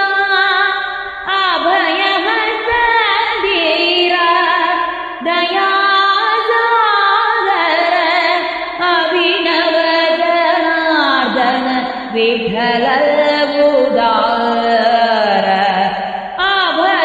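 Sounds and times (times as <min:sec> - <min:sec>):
woman singing devotional song: 0:00.0 - 0:17.0.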